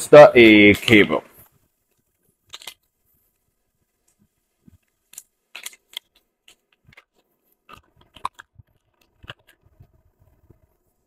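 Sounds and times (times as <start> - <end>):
plastic pouch crinkling: 2.4 - 3.0.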